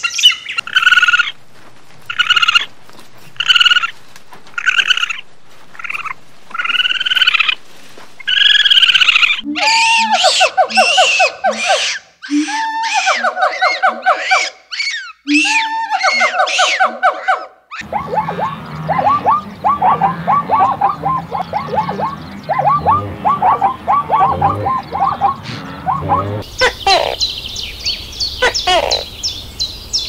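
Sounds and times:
baboon calls: 8.3s - 27.3s, 28.4s - 29.1s
zebra yelping barks: 8.7s - 27.2s.

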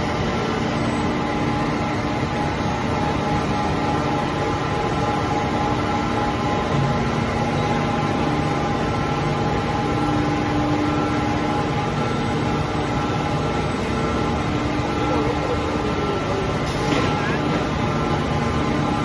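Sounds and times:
industrial machinery droning: 0.0s - 19.0s
machine hum tones: 0.0s - 19.0s.

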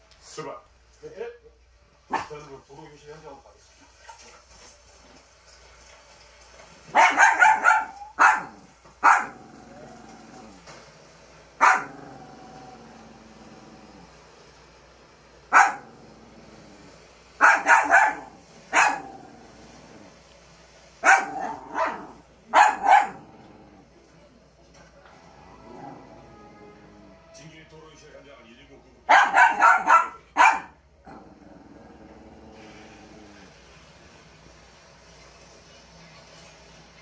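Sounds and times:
small dog barking: 2.1s - 2.3s, 6.9s - 9.5s, 11.6s - 12.2s, 15.5s - 15.9s, 17.4s - 19.3s, 21.0s - 23.4s, 29.1s - 30.8s.

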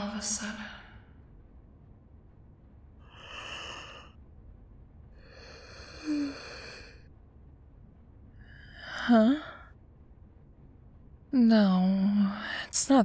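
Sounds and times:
woman breathing drowsily: 3.0s - 4.2s, 5.1s - 7.1s.

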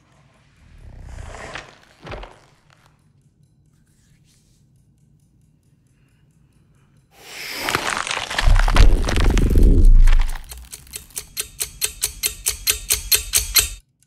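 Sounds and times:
rapid monster clicking: 7.6s - 13.8s
deep low rumble: 8.4s - 10.6s.

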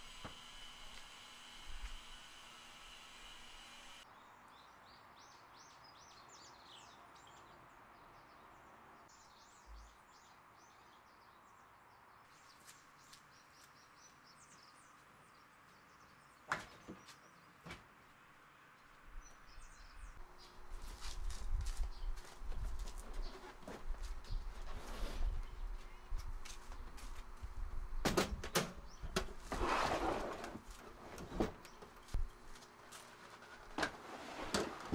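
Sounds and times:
small birds chirping: 4.0s - 17.7s, 18.7s - 24.6s, 25.4s - 27.2s.

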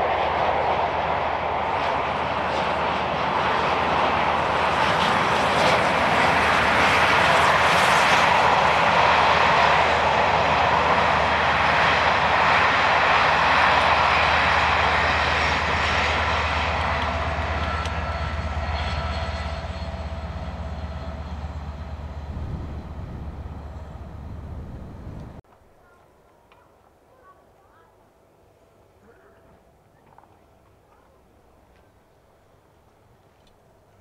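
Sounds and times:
steam train rumbling on rails: 0.0s - 25.4s.

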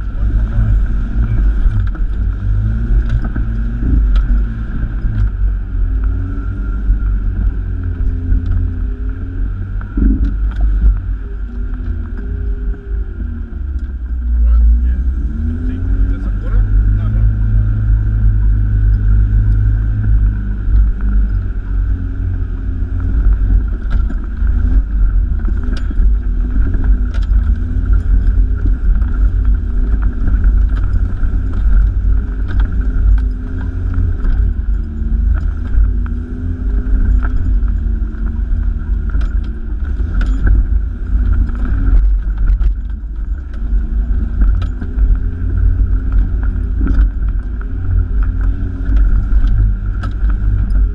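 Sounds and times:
low road rumble: 0.0s - 50.9s
vehicle engine running: 0.0s - 50.9s
cab knocks and rattles: 18.6s - 50.9s.

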